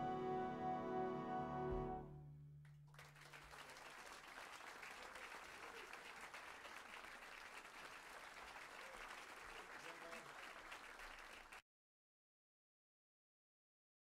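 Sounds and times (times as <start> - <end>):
closing music: 0.0 - 2.4
audience applause: 2.9 - 11.6.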